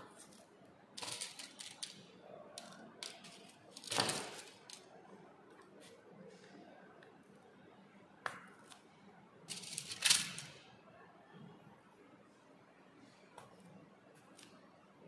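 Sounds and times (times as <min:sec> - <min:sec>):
paper rustling: 0:03.0 - 0:04.8, 0:09.5 - 0:10.5.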